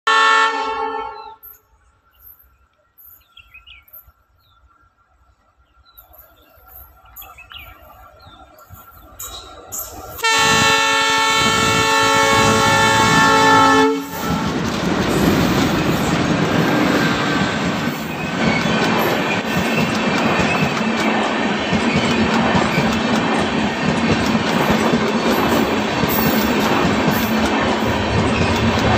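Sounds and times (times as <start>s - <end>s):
locomotive horn: 0.0s - 1.4s, 10.2s - 15.3s
train coaches rolling past: 6.0s - 28.9s.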